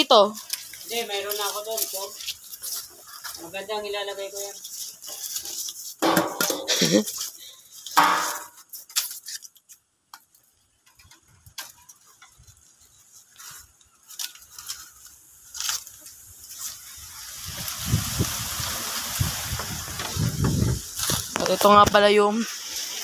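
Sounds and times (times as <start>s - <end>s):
packing tape and styrofoam crinkling: 0.0s - 23.0s
small clicks and rustles: 0.1s - 6.0s, 7.0s - 16.9s
hiss with low rumbling: 16.2s - 21.8s.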